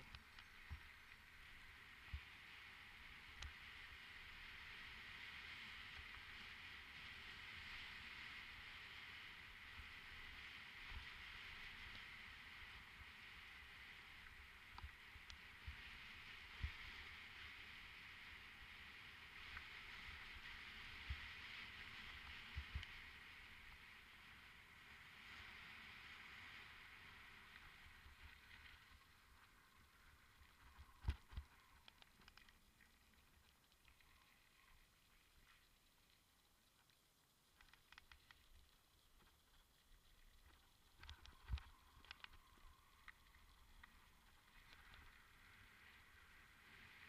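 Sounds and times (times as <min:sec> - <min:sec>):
mountain bike riding hiss: 0:01.4 - 0:29.0
light clicks: 0:30.6 - 0:34.4, 0:35.4 - 0:45.3.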